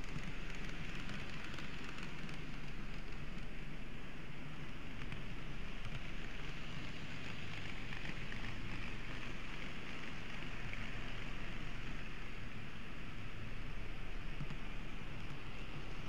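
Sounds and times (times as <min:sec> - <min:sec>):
model train whirring: 0:00.0 - 0:16.0.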